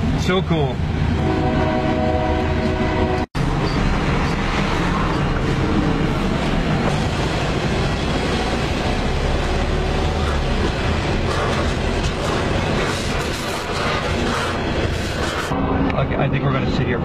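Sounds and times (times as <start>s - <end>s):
freight train horn: 1.2s - 3.3s.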